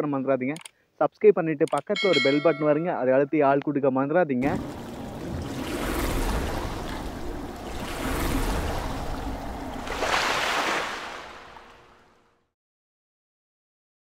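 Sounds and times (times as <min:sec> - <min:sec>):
water splashing and rushing: 0:04.4 - 0:12.3.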